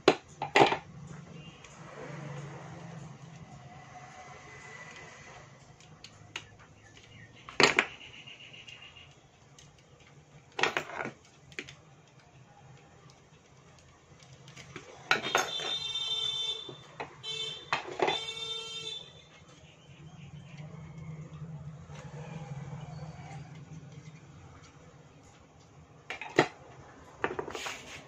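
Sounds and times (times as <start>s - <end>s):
clicks and knocks of handling: 4.9s - 7.9s, 9.4s - 16.0s.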